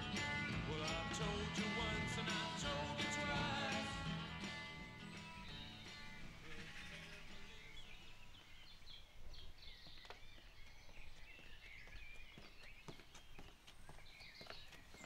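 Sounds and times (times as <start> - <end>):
guitar tune: 0.0 - 8.0
birds chirping: 0.0 - 15.0
footsteps on a paved path: 7.5 - 15.0.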